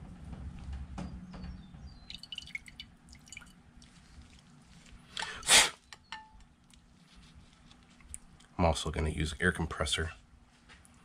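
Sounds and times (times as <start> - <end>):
liquid dripping in a ceramic bowl: 2.0 - 4.0
short loud hiss: 5.2 - 5.8.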